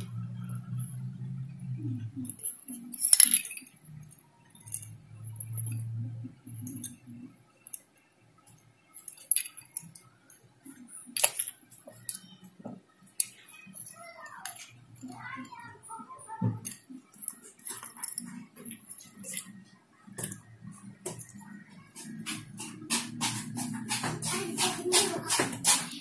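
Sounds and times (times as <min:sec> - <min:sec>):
low hum: 0:00.0 - 0:07.8.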